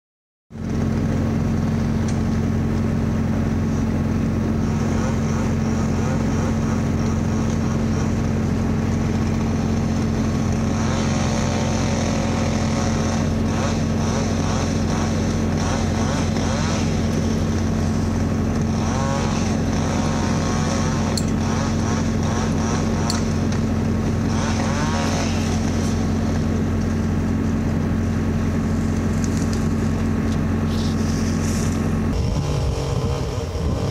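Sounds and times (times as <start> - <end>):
engine droning steadily: 0.5 - 33.9.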